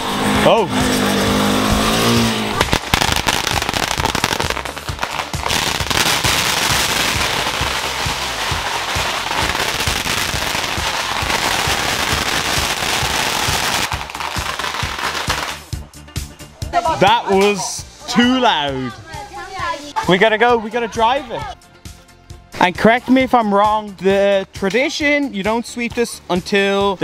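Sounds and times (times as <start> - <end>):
firecrackers crackling: 2.0 - 15.8.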